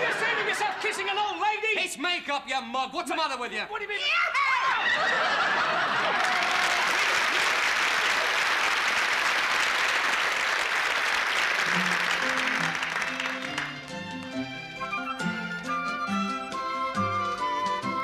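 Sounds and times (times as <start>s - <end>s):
audience applauding: 4.8s - 15.8s.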